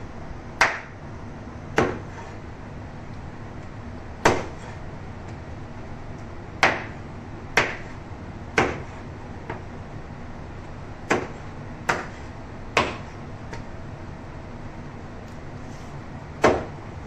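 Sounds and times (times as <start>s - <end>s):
knife chopping on a cutting board: 1.8s - 2.4s, 4.2s - 4.8s, 6.6s - 7.0s, 7.6s - 8.0s, 8.6s - 9.6s, 11.1s - 13.6s, 16.4s - 16.7s.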